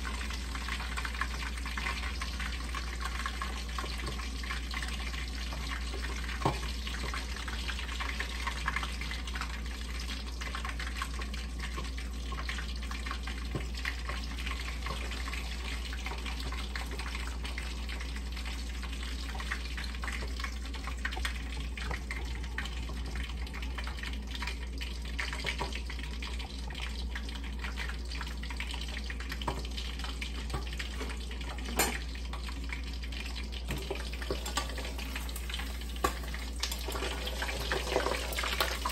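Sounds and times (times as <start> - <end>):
fish frying in hot oil: 0.0 - 38.9.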